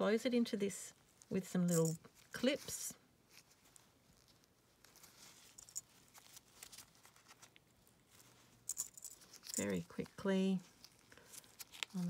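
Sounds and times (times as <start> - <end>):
plastic mesh rustling: 3.2 - 10.0.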